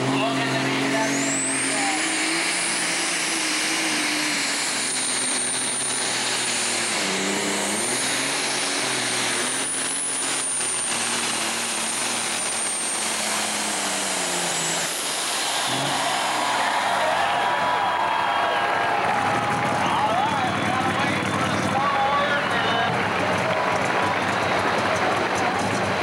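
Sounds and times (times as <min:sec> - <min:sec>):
diesel engine running hard: 0:00.0 - 0:26.0
high turbo whistle: 0:00.8 - 0:19.6.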